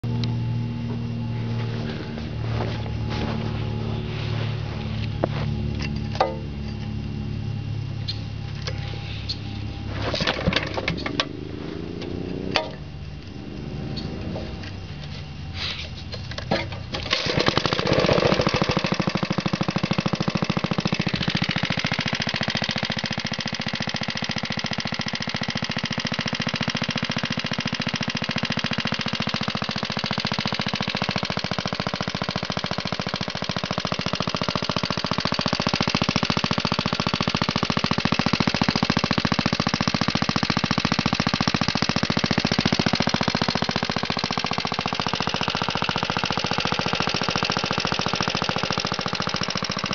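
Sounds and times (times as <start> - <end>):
small engine running: 0.0 - 49.9
recoil starter pull: 16.1 - 49.9.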